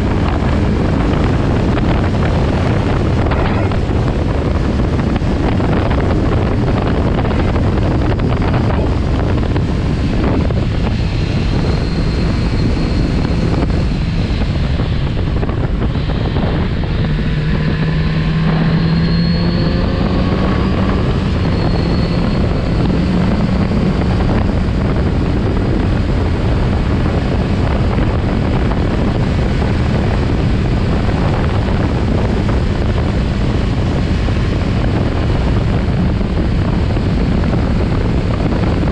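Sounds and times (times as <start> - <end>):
motorcycle engine running: 0.0 - 38.9
wind noise on microphone: 0.0 - 38.9.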